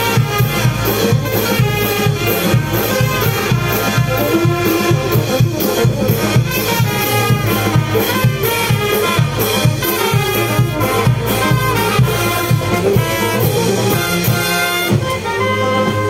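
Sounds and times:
brass band playing dance tune: 0:00.0 - 0:16.0.

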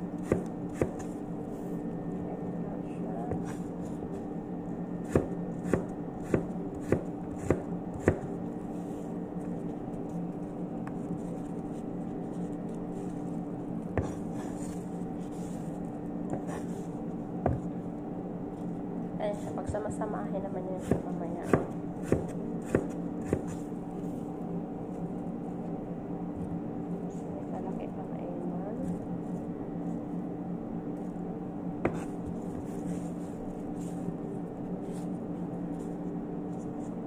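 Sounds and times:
steady low hum: 0:00.0 - 0:37.0
knife chopping on cutting board: 0:00.2 - 0:01.1, 0:05.1 - 0:08.4, 0:14.0 - 0:14.7, 0:17.5 - 0:17.7, 0:20.8 - 0:23.6, 0:31.8 - 0:32.7.

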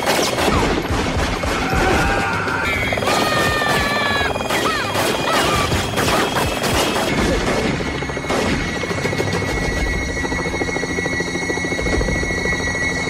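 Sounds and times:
gunshots: 0:00.0 - 0:08.9
dramatic background music: 0:00.0 - 0:13.0.

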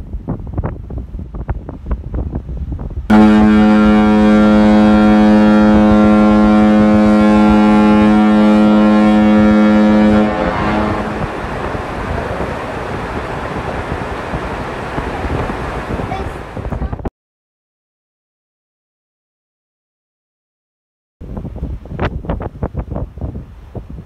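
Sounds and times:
water noise: 0:00.0 - 0:17.1
wind: 0:00.0 - 0:17.1, 0:21.2 - 0:24.0
deep ship's horn blast: 0:03.1 - 0:13.0.

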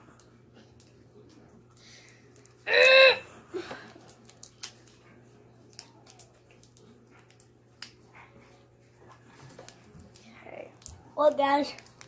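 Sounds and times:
plastic candy wrapper crinkling: 0:03.9 - 0:08.0, 0:09.6 - 0:12.0.

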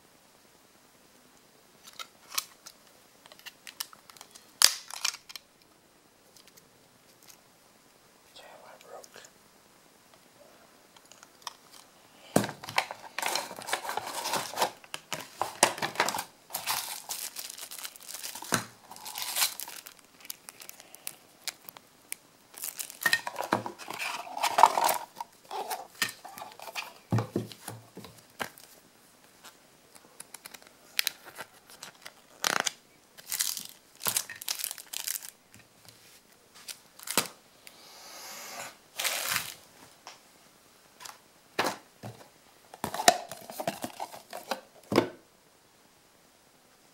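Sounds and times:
packaging crinkling and rustling: 0:01.8 - 0:05.5, 0:11.0 - 0:37.4, 0:38.9 - 0:39.7, 0:42.8 - 0:44.9.

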